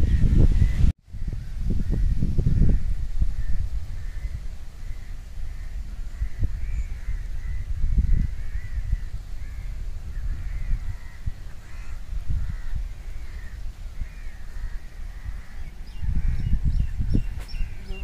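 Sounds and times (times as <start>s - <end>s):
gusty low rumble: 0.0s - 18.0s
crows cawing: 5.0s - 16.6s.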